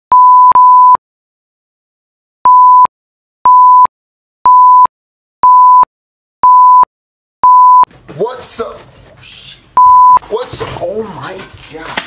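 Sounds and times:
short countdown beeps: 0.1 - 1.0, 2.5 - 2.9, 3.5 - 3.9, 4.5 - 7.9, 9.8 - 10.2
steady pure test tone beep: 0.1 - 1.0, 2.5 - 2.9, 3.5 - 3.9, 4.5 - 7.9, 9.8 - 10.2.

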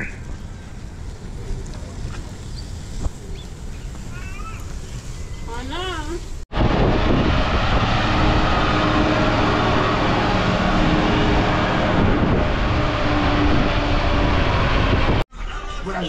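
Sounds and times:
diesel truck driving past: 6.5 - 15.3.

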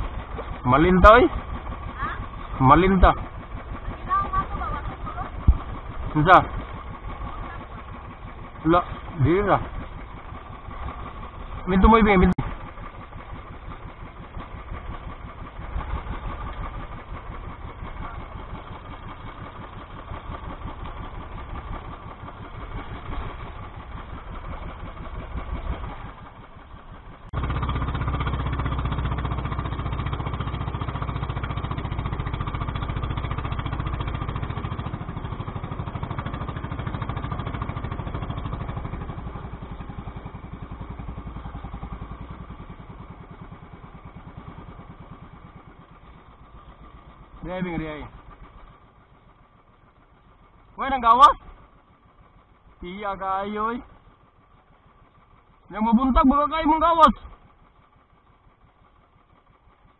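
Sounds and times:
small boat engine running: 0.0 - 59.9.

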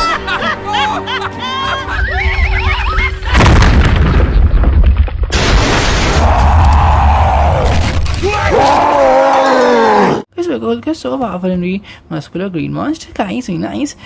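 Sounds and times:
background music: 0.0 - 3.1
heavy boom with deep rumble: 3.3 - 5.9
high-pitched cartoon cries: 9.1 - 10.2.

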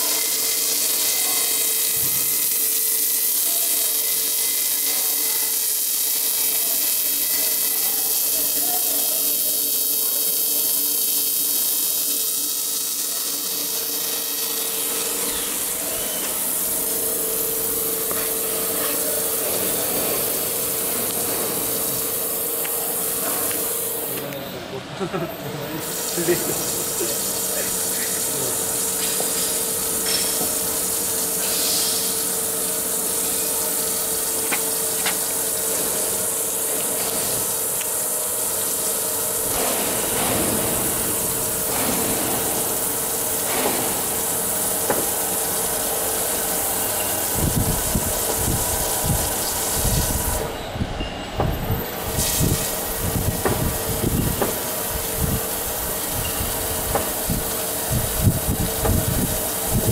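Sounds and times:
steady electrical hum: 0.0 - 59.9
hiss of flushing liquid: 25.8 - 50.5, 52.0 - 59.9.

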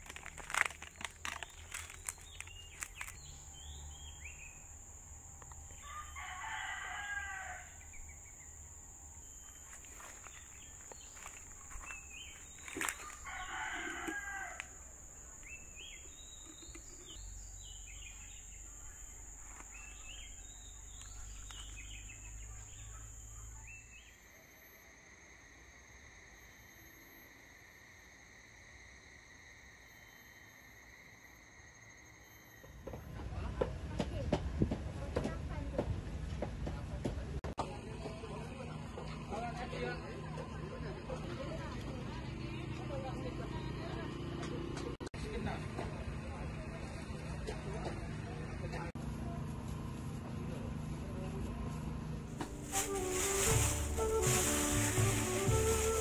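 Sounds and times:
rooster crowing: 5.8 - 8.0, 12.6 - 15.0.

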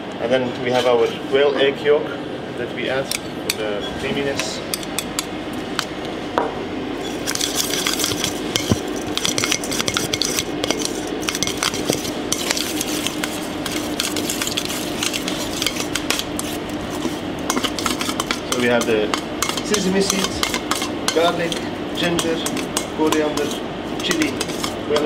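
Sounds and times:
steady low hum: 0.0 - 25.0
metal spoon scraping steel bowl: 7.0 - 25.0.

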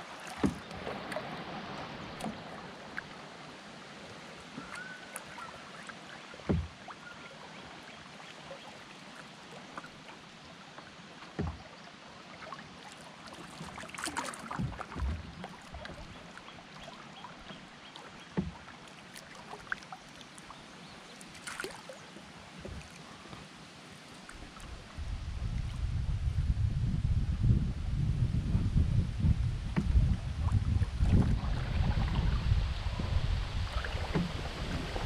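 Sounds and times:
water splashes: 0.0 - 26.0, 29.5 - 35.0
water lapping along hull: 0.0 - 35.0
sharp low knocks on hull: 6.5 - 6.8, 11.4 - 11.6, 14.5 - 16.2, 18.4 - 18.6, 29.0 - 35.0.

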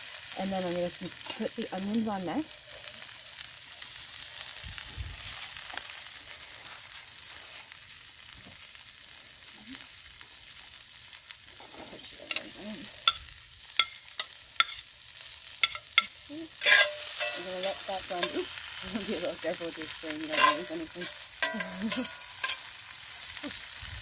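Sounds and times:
vegetables sizzling in hot oil: 0.0 - 24.0
spatula scraping pan: 13.8 - 23.7.

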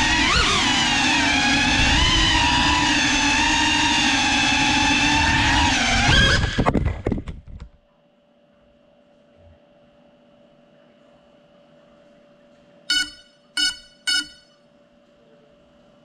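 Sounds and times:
drone motors whining: 0.0 - 6.7
faint steady tone: 12.9 - 15.5.

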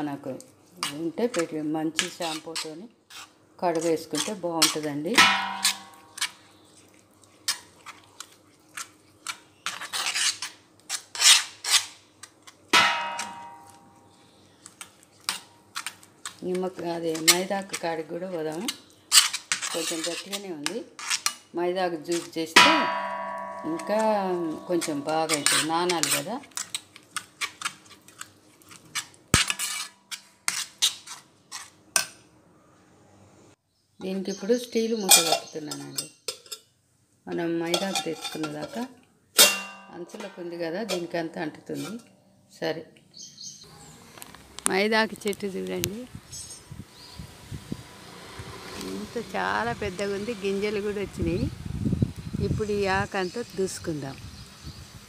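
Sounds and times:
metal spoon scraping a pan: 0.8 - 32.2, 35.0 - 36.7, 37.3 - 42.1
spoon clanging on pan: 4.6 - 6.5, 12.8 - 14.2, 22.2 - 26.7, 37.7 - 38.8, 39.4 - 42.1.

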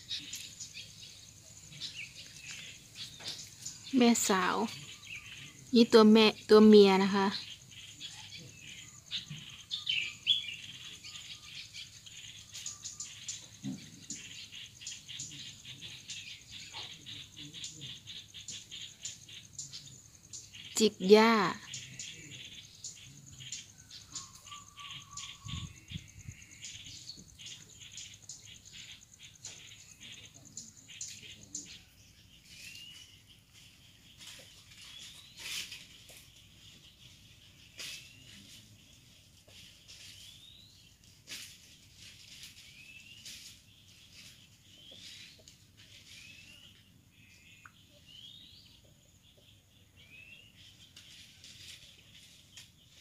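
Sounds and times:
insect trill: 0.0 - 53.0
small birds chirping: 0.0 - 53.0.

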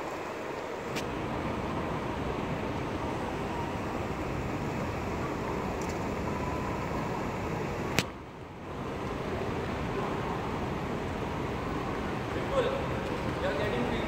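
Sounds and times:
ventilation hum: 0.0 - 14.0.

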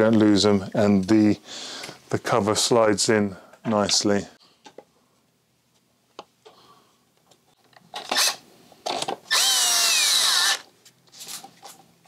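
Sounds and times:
cordless screwdriver whining: 9.3 - 10.7.

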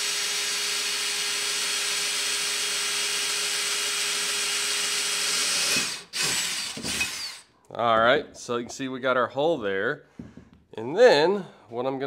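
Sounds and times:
cordless drill boring into metal: 0.0 - 7.5.

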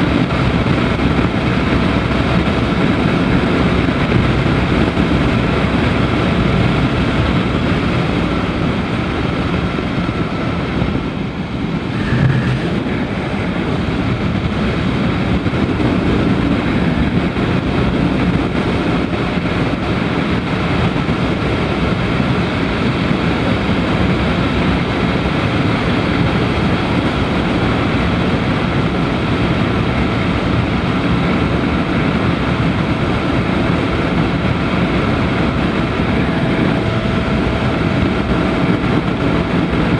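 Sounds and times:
motorcycle engine cruising: 0.0 - 39.9
wind and tyre rush: 0.0 - 39.9.

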